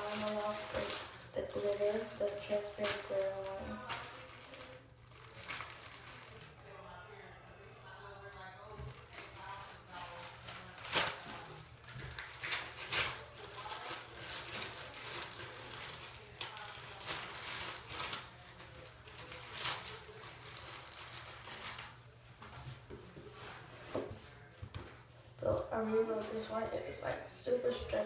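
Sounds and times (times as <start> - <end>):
plastic bag crinkling: 0.0 - 6.8, 8.3 - 22.6.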